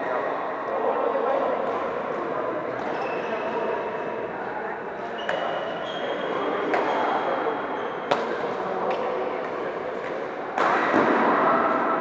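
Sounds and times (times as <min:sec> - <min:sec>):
background of other players: 0:00.0 - 0:12.0
shuttlecock hit by rackets: 0:08.1 - 0:09.1, 0:10.0 - 0:11.4.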